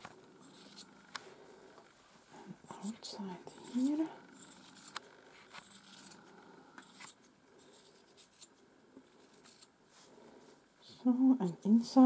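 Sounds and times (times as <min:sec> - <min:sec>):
scissors snipping hair: 0:03.6 - 0:05.0.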